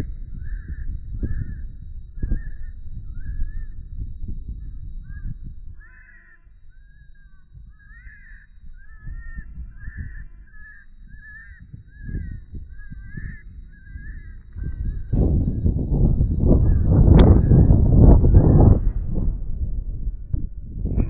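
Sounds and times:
wind gusting on microphone: 0.0s - 21.0s
high squalling animal calls: 5.0s - 20.2s.

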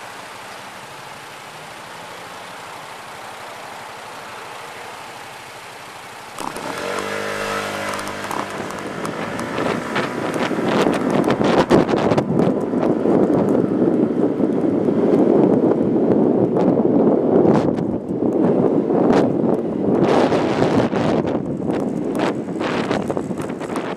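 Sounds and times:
vehicle engine accelerating: 6.4s - 16.0s
wind buffeting microphone: 6.4s - 23.9s.

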